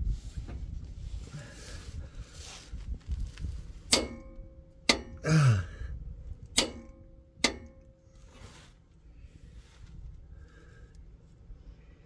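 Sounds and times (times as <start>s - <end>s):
torque wrench clicks: 3.9s - 5.2s, 6.6s - 7.9s
man grunting: 5.2s - 5.8s.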